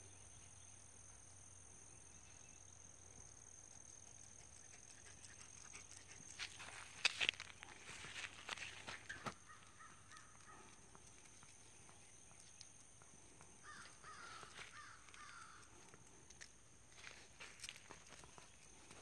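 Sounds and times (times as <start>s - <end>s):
distant crow cawing: 9.2s - 10.8s, 13.6s - 16.0s.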